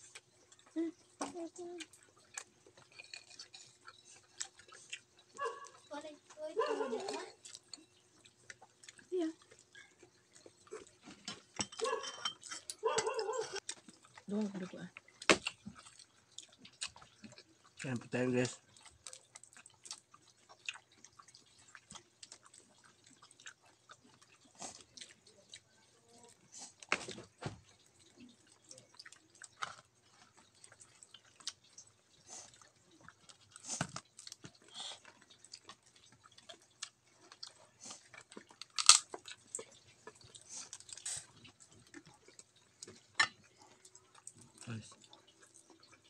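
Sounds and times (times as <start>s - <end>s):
shrimp shell crackling: 38.5s - 39.9s
sharp shell cracks: 38.7s - 39.1s.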